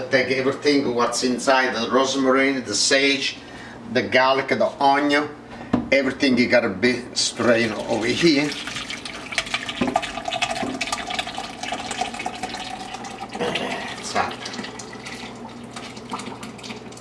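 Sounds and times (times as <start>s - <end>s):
gravy pouring through strainer: 7.5s - 17.0s.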